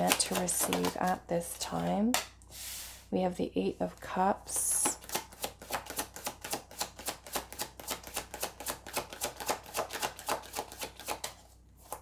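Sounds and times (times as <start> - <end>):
playing cards being shuffled: 0.0 - 1.1, 4.9 - 12.0.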